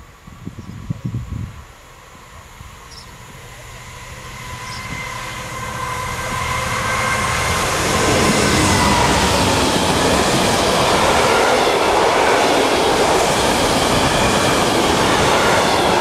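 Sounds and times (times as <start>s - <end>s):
diesel locomotive rumble: 1.2s - 16.0s
high-pitched whine: 2.0s - 16.0s.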